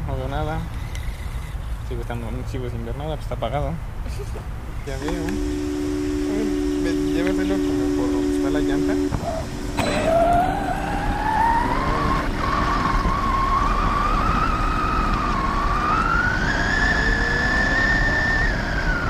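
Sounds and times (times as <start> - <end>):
low steady rumble: 0.0 - 19.0
electric motor whining: 4.9 - 19.0.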